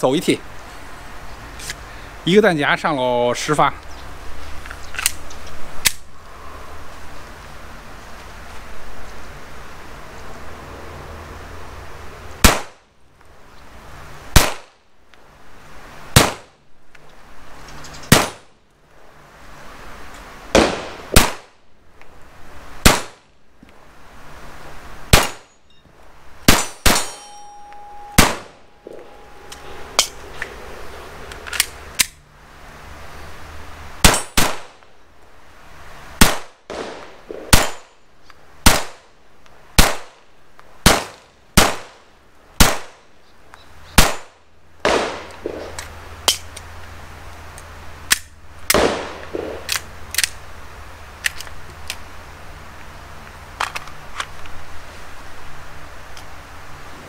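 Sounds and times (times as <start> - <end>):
pistol shots: 12.4 - 12.8, 14.4 - 14.7, 16.2 - 16.5, 18.1 - 18.4, 20.6 - 21.5, 22.8 - 23.2, 25.1 - 25.5, 26.5 - 27.2, 28.2 - 29.0, 34.0 - 34.7, 36.2 - 37.8, 44.0 - 45.7, 48.7 - 49.7
steady ringing tone: 27.0 - 31.5.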